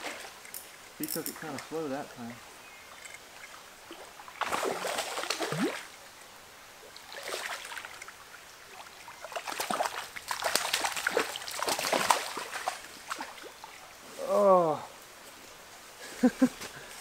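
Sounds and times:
fish splashing at water surface: 0:09.3 - 0:13.4.

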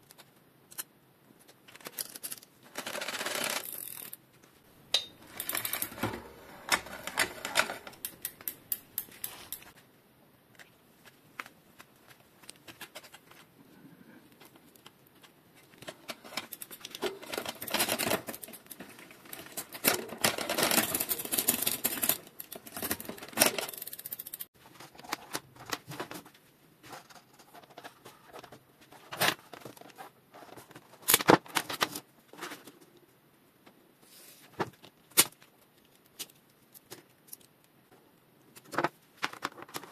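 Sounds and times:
bike chain clicking and ticking: 0:02.9 - 0:04.2.

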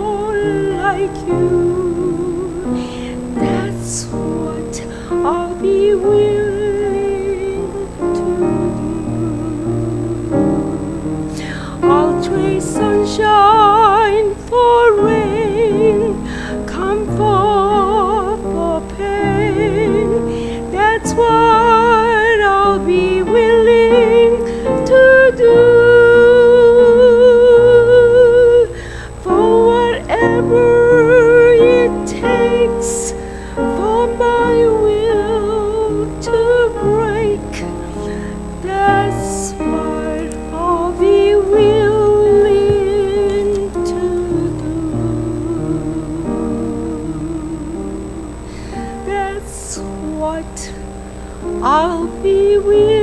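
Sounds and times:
piano accompaniment: 0:00.0 - 0:53.0
woman singing a hymn: 0:00.0 - 0:53.0.

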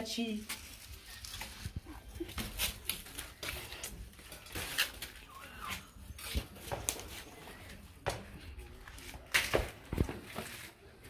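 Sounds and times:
banana leaves rustling: 0:00.2 - 0:07.8.

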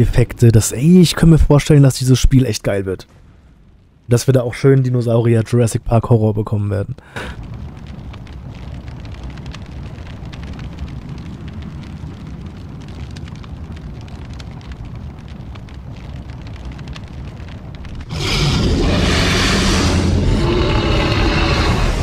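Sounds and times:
faint crackling: 0:00.0 - 0:22.0
steady low rumble: 0:00.0 - 0:22.0
loud wall of noise: 0:18.1 - 0:22.0.

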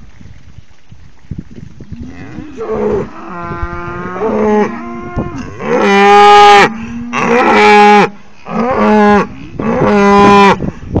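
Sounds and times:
cows mooing: 0:02.0 - 0:10.6.

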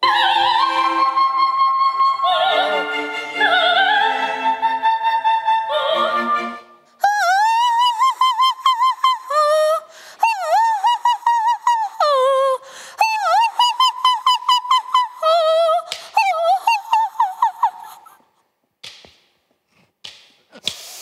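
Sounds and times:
woman singing unaccompanied: 0:00.0 - 0:18.1
soprano singing with orchestra: 0:00.0 - 0:18.2.

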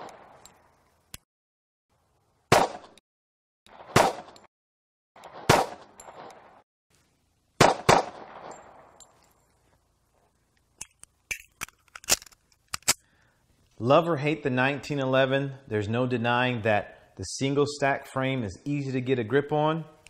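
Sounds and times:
pistol shots with echo: 0:02.5 - 0:03.0, 0:03.8 - 0:04.4, 0:05.3 - 0:06.6, 0:07.6 - 0:08.8.

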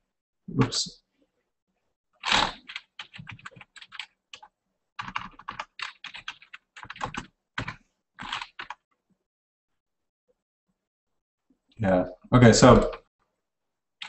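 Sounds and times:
typing on keyboard: 0:02.2 - 0:08.9.

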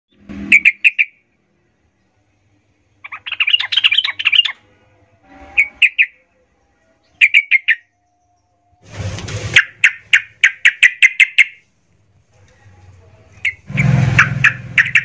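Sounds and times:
bird singing sharp notes: 0:00.1 - 0:01.2
bird rapid chattering: 0:00.5 - 0:01.2, 0:03.0 - 0:04.6, 0:07.2 - 0:07.8, 0:09.5 - 0:11.6, 0:13.4 - 0:15.0.

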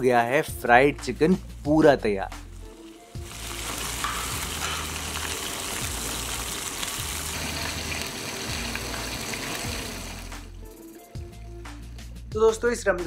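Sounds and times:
background music: 0:00.0 - 0:13.0
chicken sizzling in hot oil: 0:01.3 - 0:10.6.

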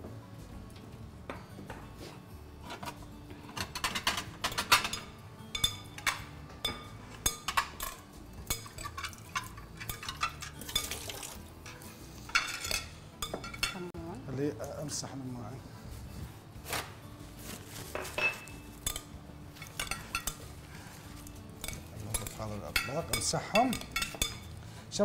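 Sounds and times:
plates clinking on counter: 0:12.3 - 0:13.8, 0:17.9 - 0:19.0.

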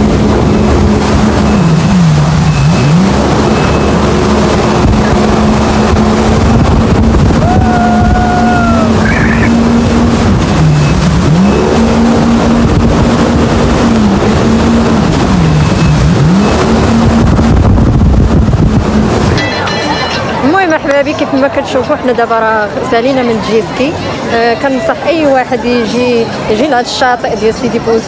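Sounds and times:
rush of wind and spray: 0:00.0 - 0:19.4
jet ski engine running: 0:00.0 - 0:20.5.

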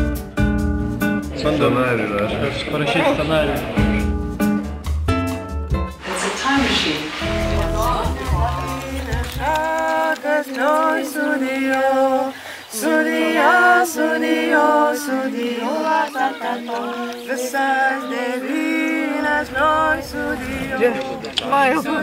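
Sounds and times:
group singing unaccompanied: 0:06.0 - 0:22.0.

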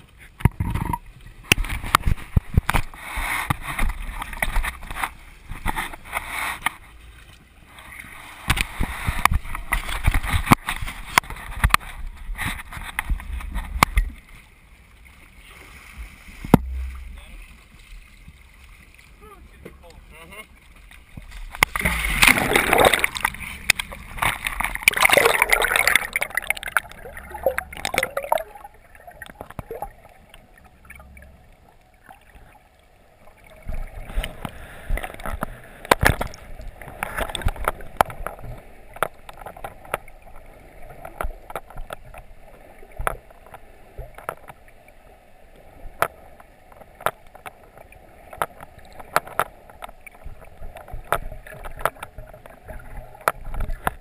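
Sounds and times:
muffled underwater wash: 0:00.0 - 0:54.0
sharp underwater clicks: 0:00.4 - 0:06.8, 0:20.8 - 0:31.4, 0:33.6 - 0:42.3, 0:46.0 - 0:54.0
water splashing at surface: 0:20.9 - 0:31.3.

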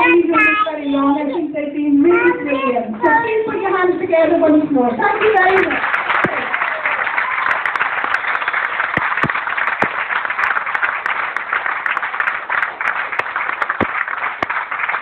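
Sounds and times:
audience applauding: 0:05.0 - 0:15.0
sharp individual claps: 0:05.6 - 0:15.0.

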